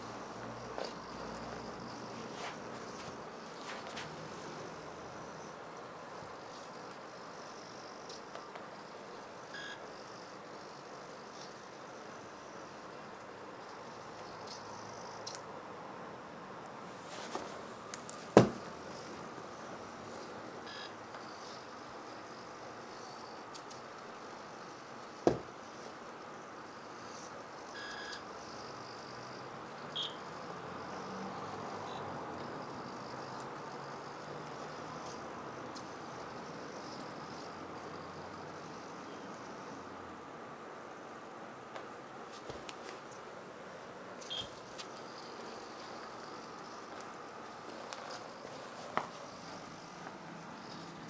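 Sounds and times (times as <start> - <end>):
short electronic beeps: 30.0 - 30.2, 44.2 - 44.5
small electric motors buzzing: 30.0 - 39.9.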